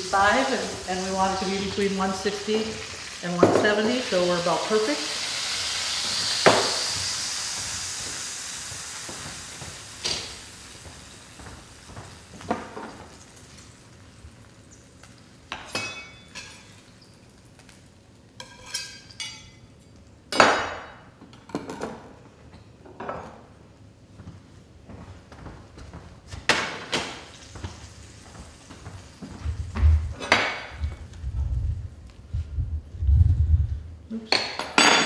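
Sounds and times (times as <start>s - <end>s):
meat juices sizzling: 0.0s - 15.5s.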